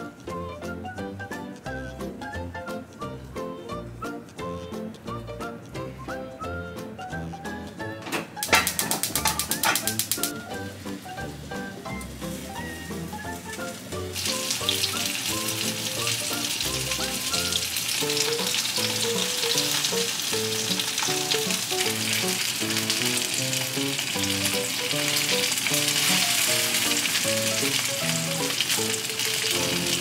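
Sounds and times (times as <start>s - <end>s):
plucked background music: 0.0s - 30.0s
meat sizzling in oil: 8.4s - 30.0s.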